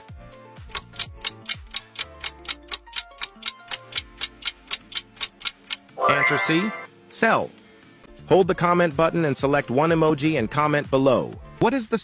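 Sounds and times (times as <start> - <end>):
soft background music: 0.0 - 12.0
clock ticking: 0.6 - 6.0.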